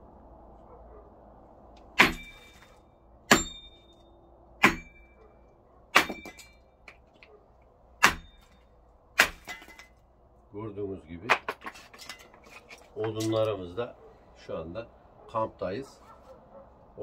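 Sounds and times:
cleaver chopping into wood: 2.0 - 2.6, 3.3 - 3.6, 4.6 - 5.0, 6.0 - 6.4, 8.0 - 8.4, 9.2 - 9.8.

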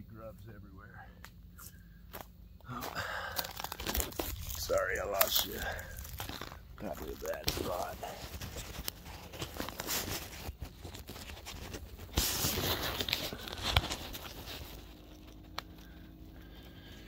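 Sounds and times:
camera handling rustle: 3.5 - 6.2, 6.9 - 16.0.

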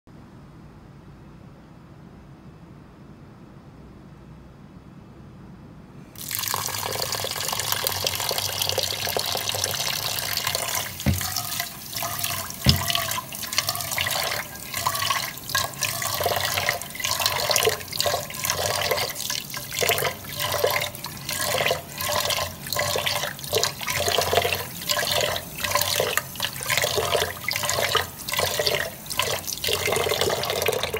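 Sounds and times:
tap water pouring into pot: 6.2 - 30.9
knocks: 11.0 - 11.4, 12.6 - 13.0.

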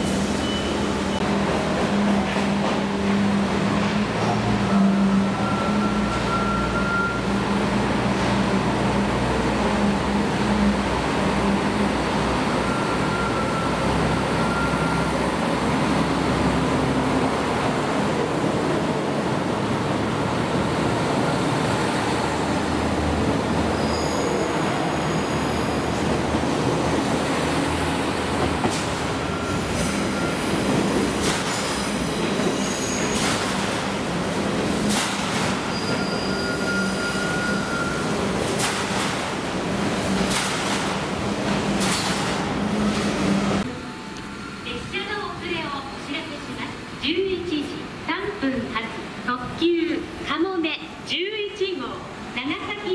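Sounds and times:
diesel railcar drone: 0.0 - 38.6, 39.3 - 47.0
wheels rumbling on rail: 0.0 - 44.6
high-pitched wheel squeals: 23.8 - 25.9, 32.1 - 33.2, 35.7 - 38.2.

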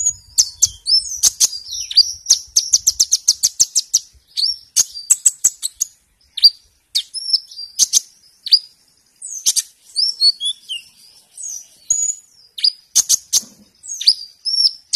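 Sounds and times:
sunbird singing: 0.0 - 14.9.

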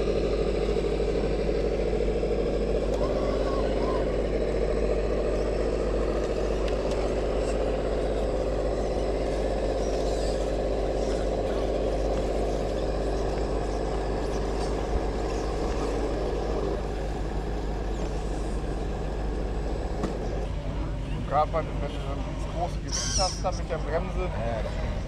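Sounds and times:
radio-controlled car motor whine: 0.0 - 25.0.

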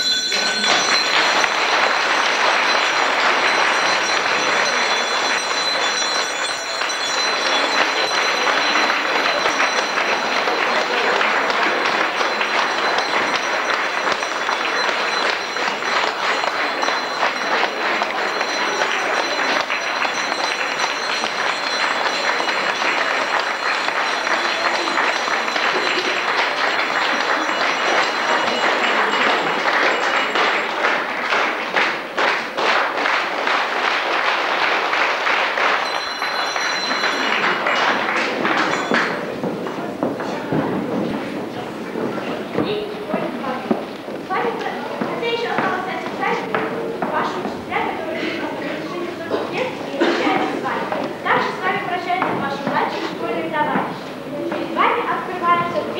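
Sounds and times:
handbell ringing: 0.0 - 31.6, 34.9 - 40.3
audience applauding: 0.0 - 42.7.

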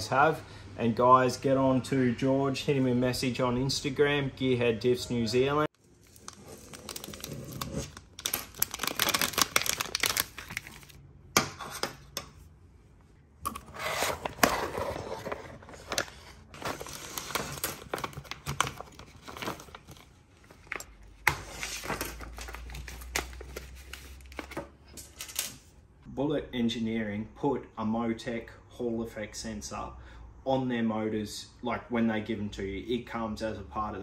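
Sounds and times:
plastic packaging crinkling: 5.8 - 11.0, 13.9 - 20.9.

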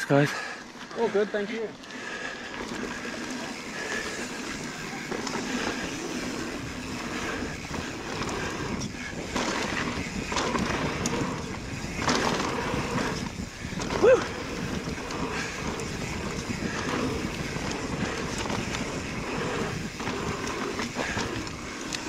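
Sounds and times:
bike tyres rolling on dirt: 0.1 - 22.0
bike rattling and knocking: 0.9 - 22.0
wind on microphone: 3.6 - 22.0.

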